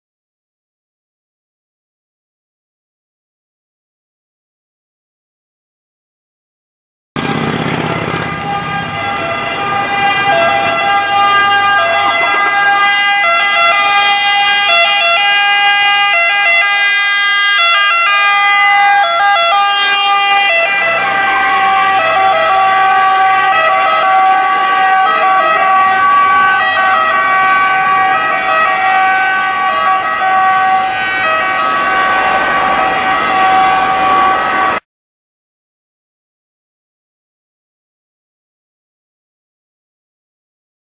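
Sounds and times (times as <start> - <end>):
two-tone siren: 7.7 - 34.8.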